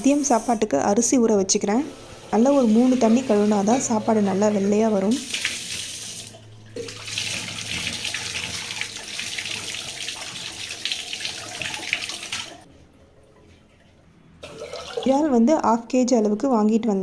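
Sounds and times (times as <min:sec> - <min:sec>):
water running from a tap: 0:01.6 - 0:12.7, 0:14.4 - 0:15.2.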